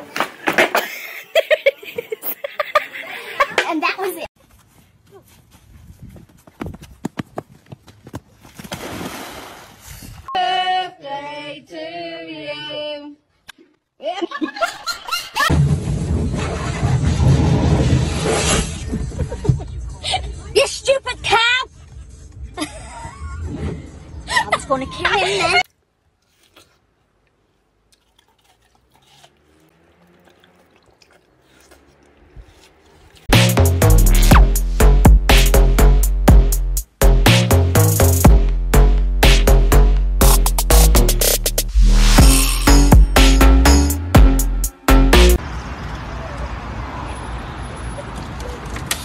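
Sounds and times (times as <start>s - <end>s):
water splashing and rushing: 8.6s - 9.9s
voices singing: 10.3s - 13.2s
watermelon being chewed: 25.6s - 33.3s.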